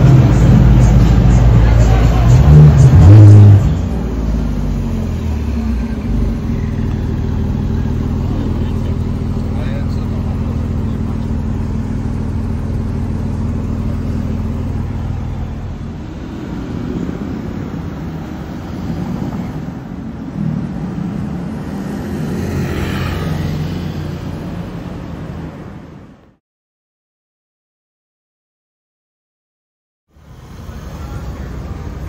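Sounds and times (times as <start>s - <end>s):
car engine: 0.0s - 26.4s, 30.1s - 32.0s
street traffic: 0.0s - 26.4s, 30.1s - 32.0s.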